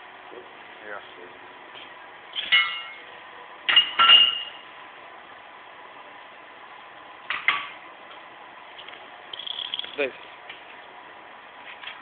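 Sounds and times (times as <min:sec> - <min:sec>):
metal-on-metal clinks: 0:09.4 - 0:10.1.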